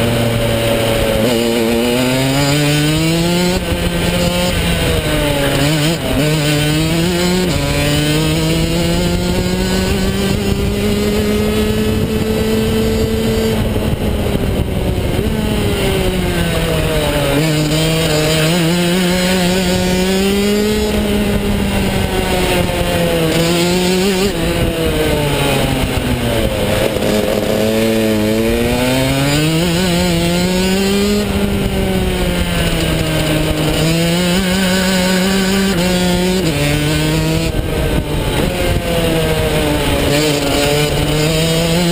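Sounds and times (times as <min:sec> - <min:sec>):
kart engine revving: 0:00.0 - 0:41.9
wind and road noise: 0:00.0 - 0:41.9.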